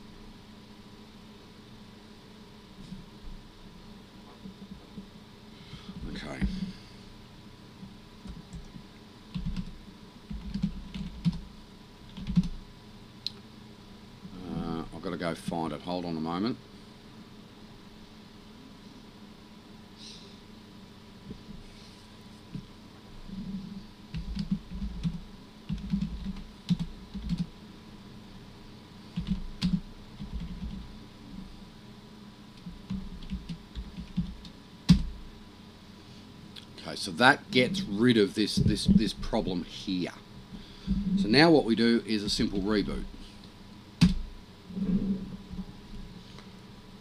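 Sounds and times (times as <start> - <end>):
typing on computer keyboard: 9.3 - 9.7, 10.3 - 11.4, 12.1 - 12.6, 24.2 - 27.5, 29.2 - 30.8, 32.9 - 35.0.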